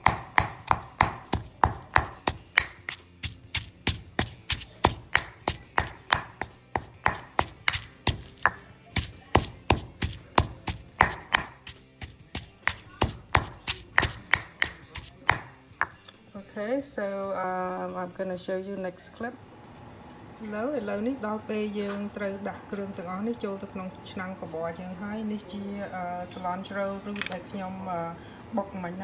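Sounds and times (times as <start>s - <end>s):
stone pestle pounding in mortar: 0.0s - 16.0s.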